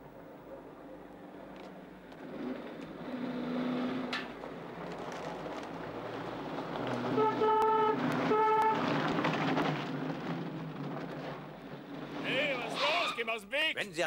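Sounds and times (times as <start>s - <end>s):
car driving: 0.0s - 13.2s
car horn honking: 7.1s - 8.8s.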